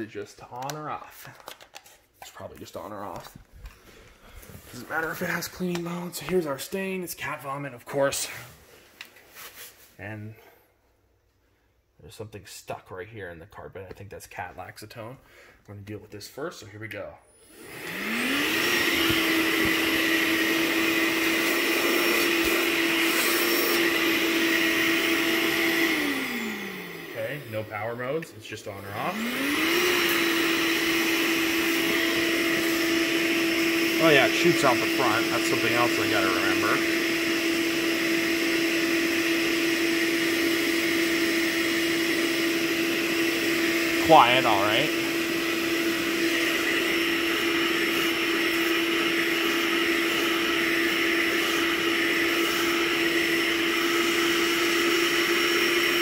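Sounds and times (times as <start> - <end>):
carpet cleaner suction motor whining: 17.3 - 56.0.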